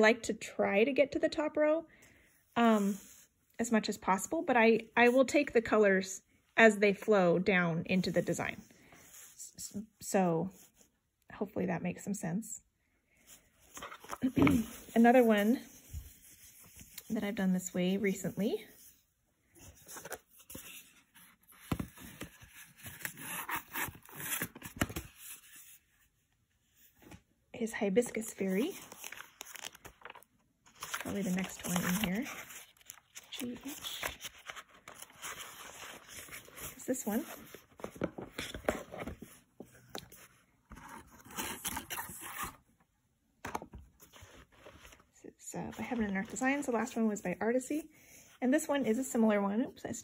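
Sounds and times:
plastic sleeves rustling: 28.1s - 42.4s.

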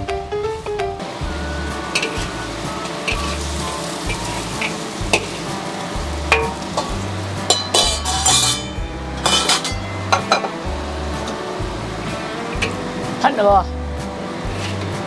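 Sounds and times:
sizzle: 0.0s - 15.0s
sauce bubbling: 1.0s - 8.0s
ladle scraping and clinking on wok: 1.9s - 10.6s.

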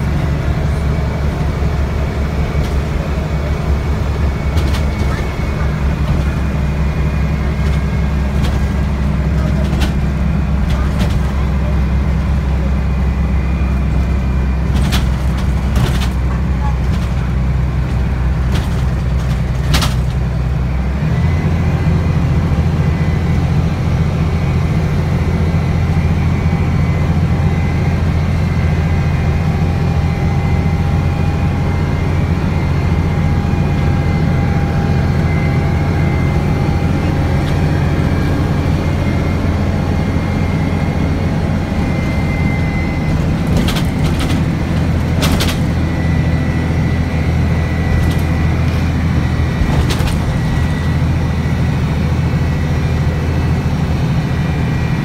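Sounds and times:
bus engine drone: 0.0s - 55.0s
sharp clicks and rattles: 4.4s - 6.6s, 14.7s - 20.2s, 43.1s - 46.0s, 47.8s - 48.8s, 49.6s - 50.9s
faint whine: 25.3s - 55.0s.

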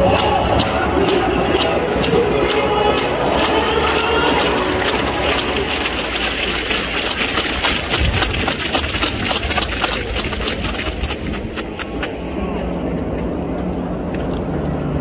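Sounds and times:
crowd clapping: 0.0s - 12.3s
low crowd rumble: 0.0s - 15.0s.

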